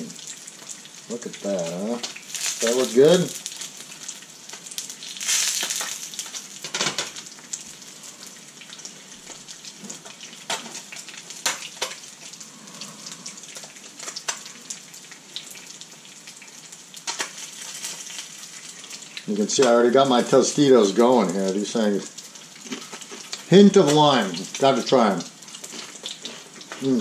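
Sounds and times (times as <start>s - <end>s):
fish sizzling in oil: 0.0s - 27.0s
sharp pops of frying oil: 2.0s - 7.4s, 9.8s - 12.1s, 17.0s - 18.3s.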